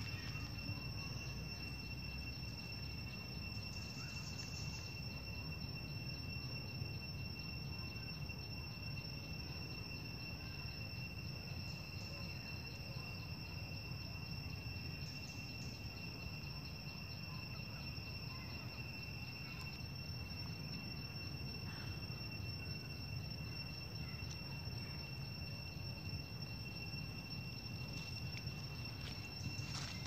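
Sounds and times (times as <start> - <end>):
insects trilling: 0.0 - 30.0.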